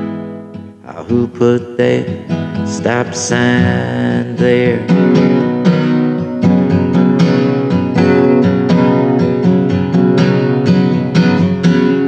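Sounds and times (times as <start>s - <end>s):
acoustic guitar strumming: 0.0s - 12.0s
person singing: 0.8s - 5.5s.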